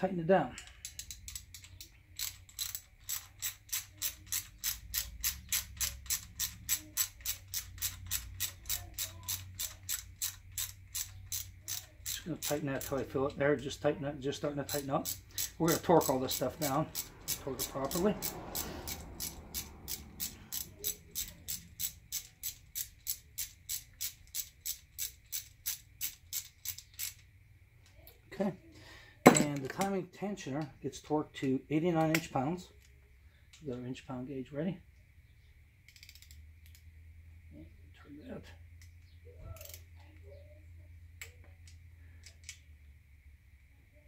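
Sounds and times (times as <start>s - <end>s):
ratchet wrench clicking: 0.5s - 13.4s, 14.4s - 27.3s, 35.8s - 36.8s, 39.6s - 39.9s.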